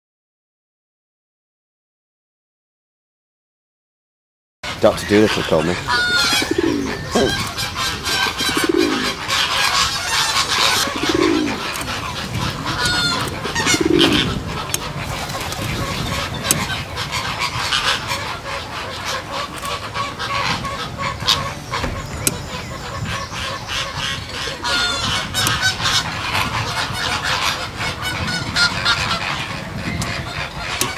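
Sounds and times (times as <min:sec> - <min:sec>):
flamingos honking and chattering: 0:04.7 - 0:30.9
low single bird calls: 0:05.0 - 0:30.9.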